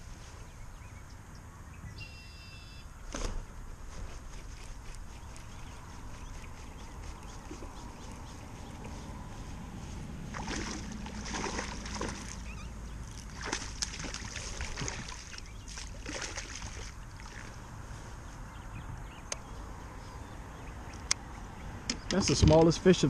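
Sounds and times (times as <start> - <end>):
water splashing: 10.3 - 17.6.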